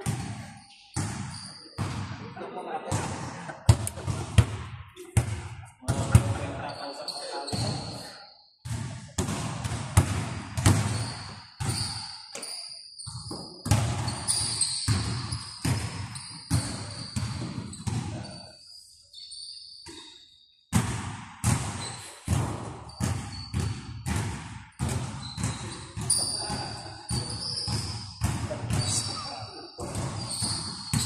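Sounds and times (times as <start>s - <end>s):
basketballs bouncing on gym floor: 0.0s - 2.2s, 2.9s - 6.7s, 7.5s - 18.4s, 19.8s - 31.0s
shoes squeaking: 5.9s - 8.2s, 10.8s - 20.2s, 25.2s - 28.0s, 28.7s - 31.0s.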